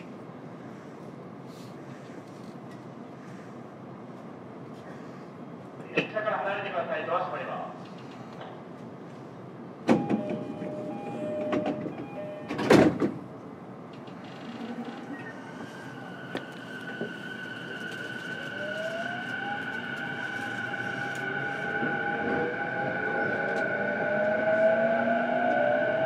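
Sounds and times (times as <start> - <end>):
train doors shutting thud: 9.8 - 13.3.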